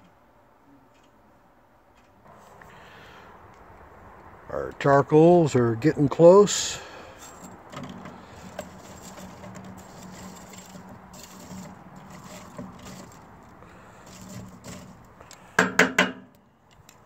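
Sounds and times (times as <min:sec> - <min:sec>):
metal tongs scraping charcoal: 0:06.8 - 0:15.6.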